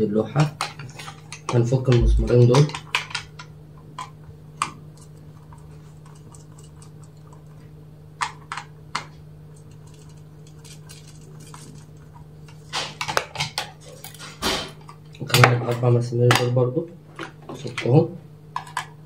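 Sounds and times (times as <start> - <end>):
steady low hum: 1.9 - 2.6.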